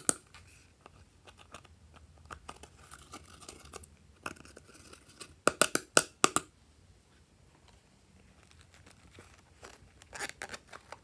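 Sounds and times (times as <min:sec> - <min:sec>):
soft rustling: 0:07.0 - 0:11.0.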